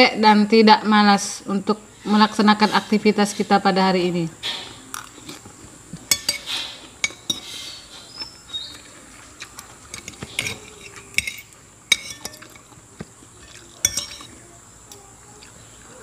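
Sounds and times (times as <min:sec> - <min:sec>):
sharp cutlery clinks: 0:06.1 - 0:07.6, 0:09.9 - 0:12.6, 0:13.8 - 0:14.3
cutlery scraping a ceramic plate: 0:06.1 - 0:08.8, 0:09.8 - 0:12.7, 0:13.4 - 0:14.3.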